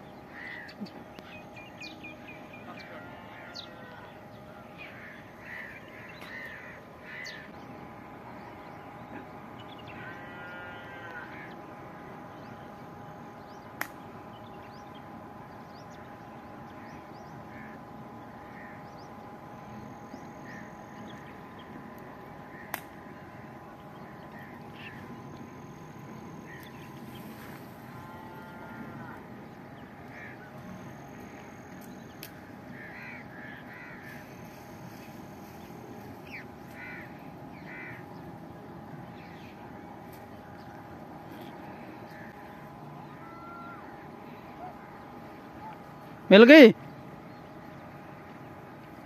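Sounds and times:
faint birds background: 0.0s - 49.0s
crows cawing: 0.3s - 1.9s, 2.6s - 7.8s, 9.8s - 11.7s, 16.7s - 21.2s, 22.2s - 40.7s, 41.3s - 44.8s.

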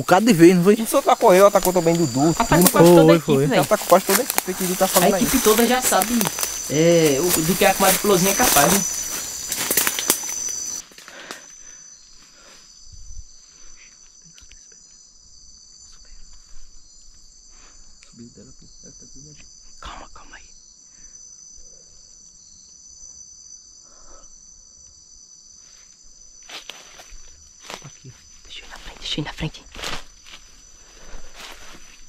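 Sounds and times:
night insects trilling: 0.0s - 32.0s
footsteps through dry leaves: 0.8s - 10.8s.

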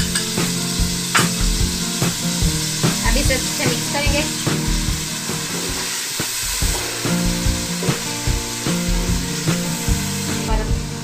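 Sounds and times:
masala sizzling in oil: 0.0s - 11.0s.

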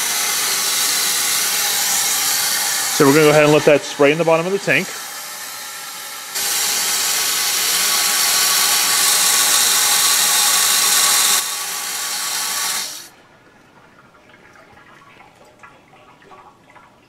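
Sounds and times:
water rushing into a tank: 13.8s - 17.0s.

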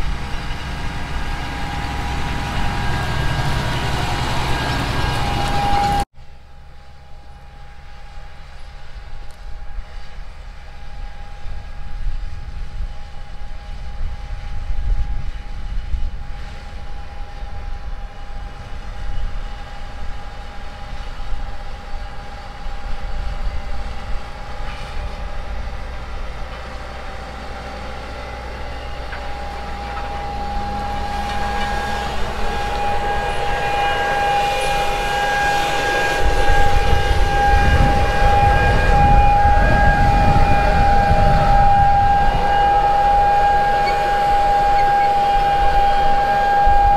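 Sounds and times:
tractor running with high whine: 0.0s - 46.9s
wind rumble on microphone: 8.7s - 27.1s, 28.2s - 46.9s.

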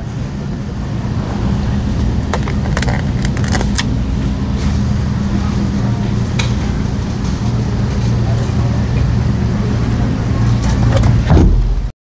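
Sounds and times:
refrigerator and ventilation hum: 0.0s - 11.9s.

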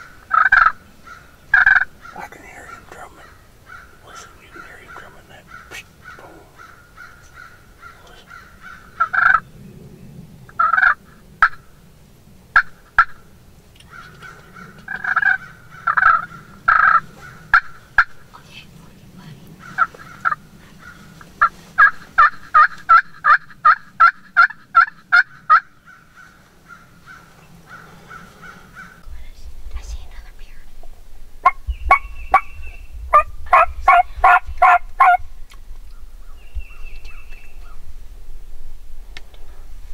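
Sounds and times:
turkey clucking and yelping: 0.0s - 9.4s, 10.5s - 11.7s, 12.6s - 13.2s, 13.8s - 18.2s, 19.6s - 29.0s, 33.1s - 35.3s.

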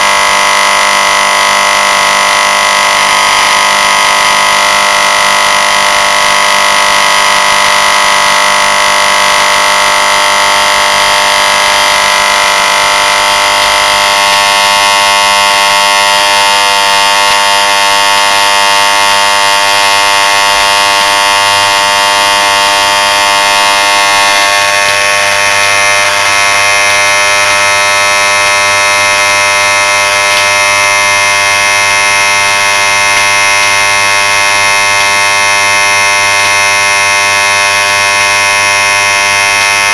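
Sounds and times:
electric motor buzzing: 0.0s - 39.9s.

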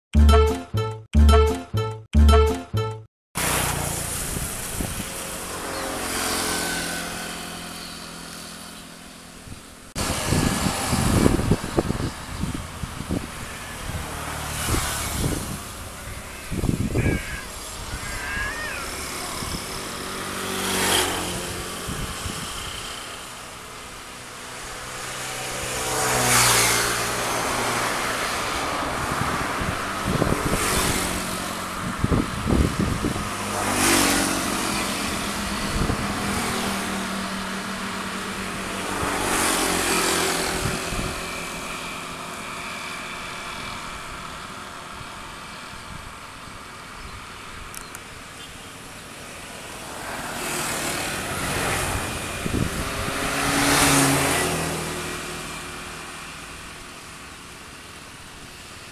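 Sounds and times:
engines running: 29.6s - 56.4s.

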